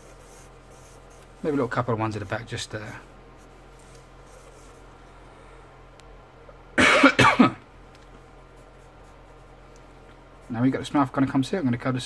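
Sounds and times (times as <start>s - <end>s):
faint room hum: 0.0s - 12.0s
man coughing: 6.8s - 7.6s.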